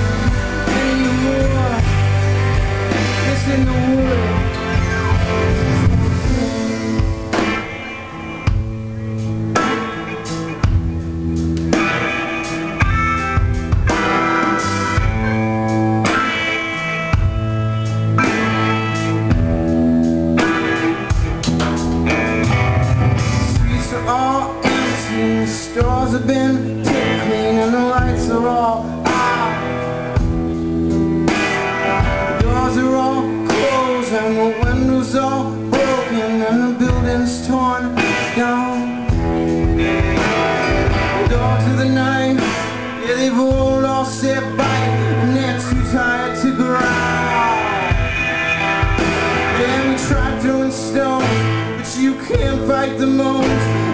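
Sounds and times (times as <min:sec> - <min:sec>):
bending electric guitar lead: 0:00.0 - 0:53.9
live blues-rock band: 0:00.0 - 0:53.9.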